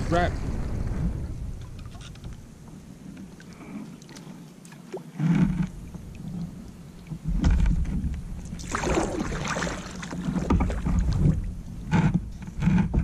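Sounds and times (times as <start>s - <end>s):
kayak paddle splashing water: 3.2s - 11.6s.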